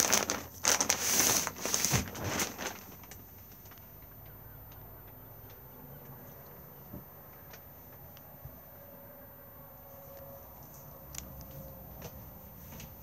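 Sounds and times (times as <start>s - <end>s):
plastic bag crinkling: 0.0s - 3.8s.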